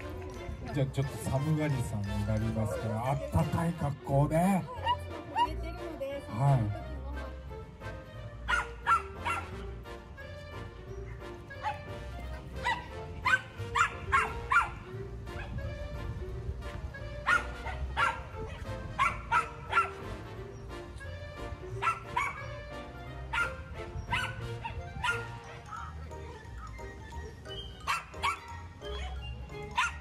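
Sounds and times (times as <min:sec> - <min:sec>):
background music: 0:00.0 - 0:30.0
small dogs yipping: 0:04.6 - 0:05.7, 0:08.5 - 0:09.6, 0:11.0 - 0:11.9, 0:12.5 - 0:15.6, 0:17.2 - 0:20.0, 0:21.7 - 0:22.7, 0:23.3 - 0:30.0.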